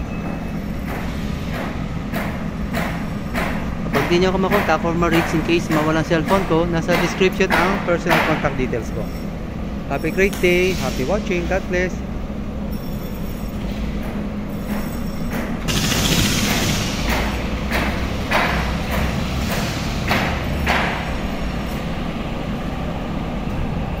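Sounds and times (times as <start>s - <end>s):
short noisy bursts: 15.7s - 17.4s.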